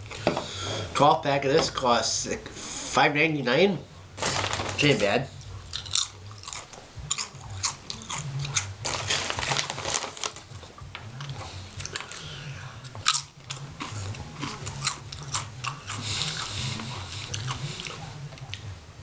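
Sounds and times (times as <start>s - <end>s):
potato chips crunching: 4.2s - 18.6s.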